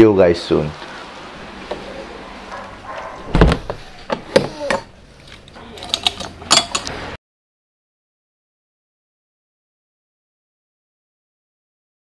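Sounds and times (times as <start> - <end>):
door shutting: 1.6 - 4.8
heavy thud: 3.2 - 3.9.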